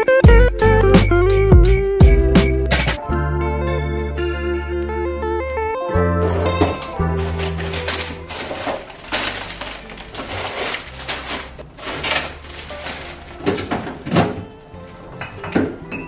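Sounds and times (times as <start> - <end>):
plastic bags rustling: 6.4 - 14.6.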